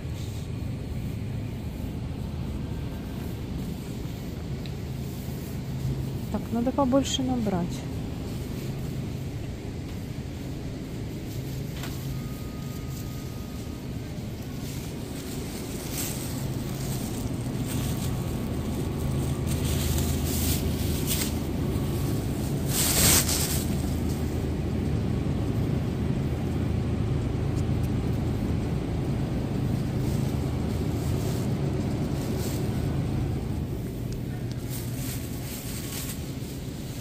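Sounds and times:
low machine hum: 0.0 - 37.0
short rustling: 9.9 - 24.4, 29.6 - 37.0.

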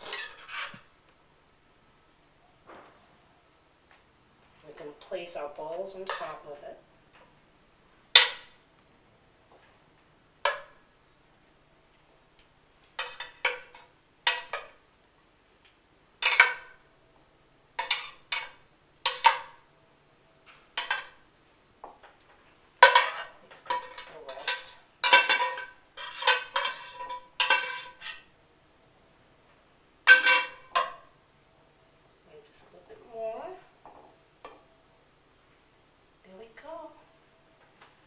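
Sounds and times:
metal utensil clinking on pan: 6.0 - 6.5, 17.8 - 19.6, 20.8 - 21.2, 22.8 - 28.3, 30.1 - 31.0.

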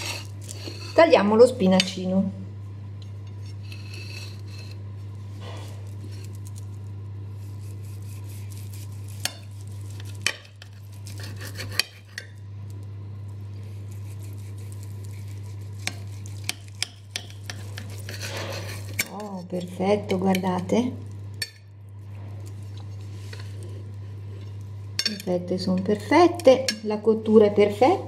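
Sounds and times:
knife sawing through roast: 0.0 - 1.1, 3.4 - 4.8, 7.3 - 12.3, 13.5 - 19.4
steady low hum: 0.0 - 28.0.

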